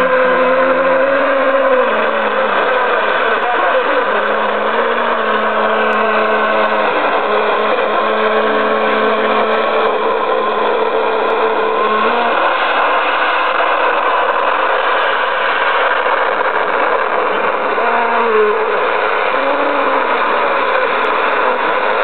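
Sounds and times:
radio static hiss: 0.0 - 22.0.

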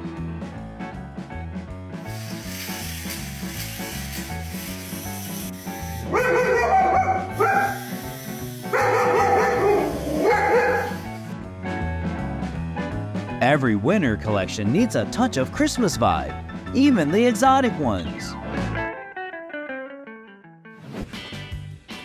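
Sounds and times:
background music: 0.0 - 22.0
dog barking: 6.1 - 7.8, 8.7 - 11.0.

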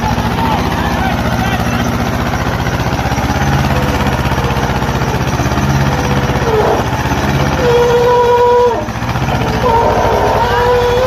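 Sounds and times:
diesel tractor engine chugging: 0.0 - 11.0
steady high tone: 0.0 - 11.0.

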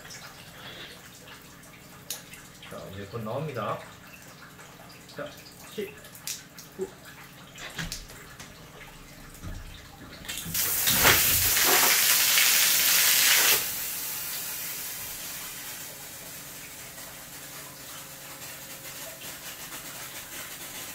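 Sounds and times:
water gushing from a pipe: 9.4 - 20.9.

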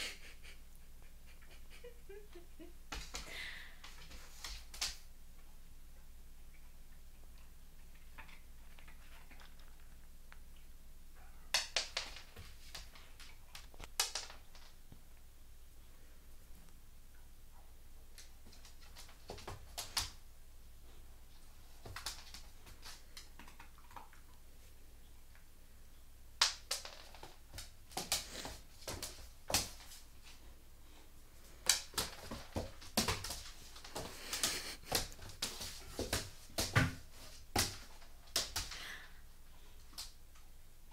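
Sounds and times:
puppy eating with crunches: 6.5 - 10.7, 22.0 - 24.4
dog claws tapping on wooden floor: 11.5 - 14.7, 21.8 - 24.2, 26.4 - 30.0, 31.6 - 38.8.

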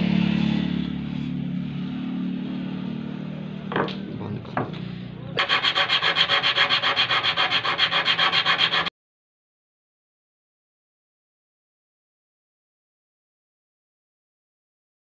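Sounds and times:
rapid scraping by hand: 5.4 - 8.9.

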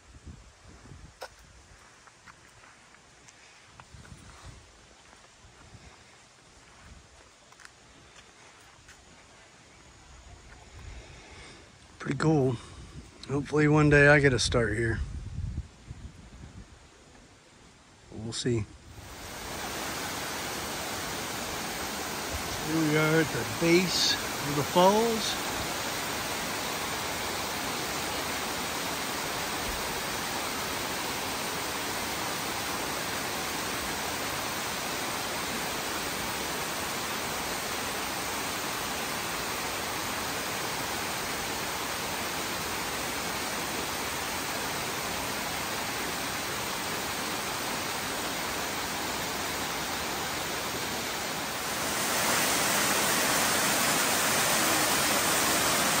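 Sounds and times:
waterfall rushing: 18.9 - 56.0.

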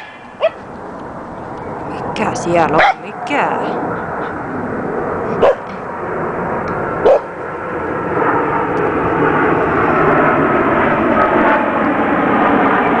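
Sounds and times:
dog barking: 0.0 - 0.6, 2.8 - 3.0, 5.4 - 5.7, 7.0 - 7.3
steady drone: 0.0 - 13.0.

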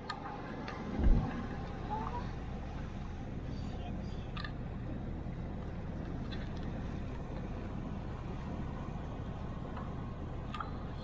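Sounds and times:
car driving through water rumble: 0.0 - 11.0
faint clicks: 9.7 - 10.8.

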